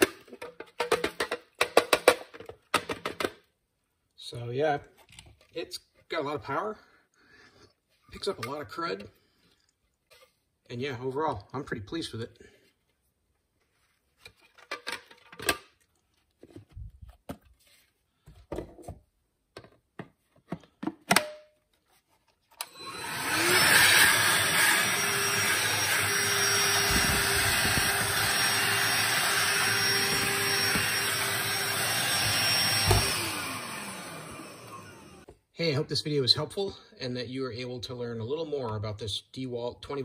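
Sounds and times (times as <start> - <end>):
hand vacuum motor running: 22.6 - 35.3.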